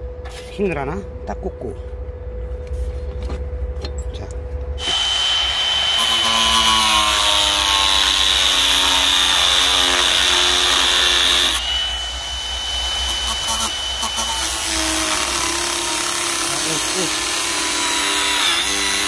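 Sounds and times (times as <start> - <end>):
angle grinder grinding steel: 4.8 - 19.0
grinder high whine: 4.8 - 19.0.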